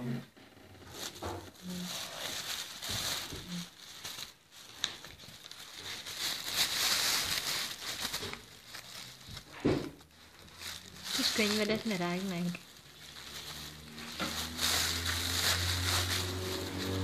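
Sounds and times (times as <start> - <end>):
plastic bag rustling: 0.6 - 17.0.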